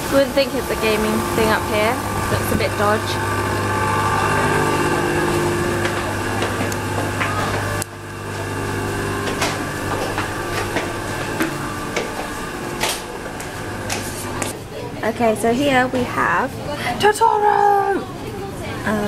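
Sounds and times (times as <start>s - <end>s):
machine hum: 0.0s - 14.6s
footsteps on tiled stairs: 4.5s - 14.6s.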